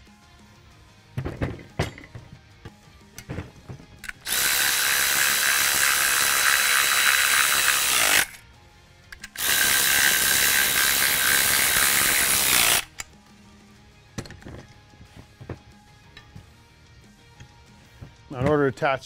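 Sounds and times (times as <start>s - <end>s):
cordless ratchet running down nuts: 4.0s - 8.4s, 9.2s - 13.0s.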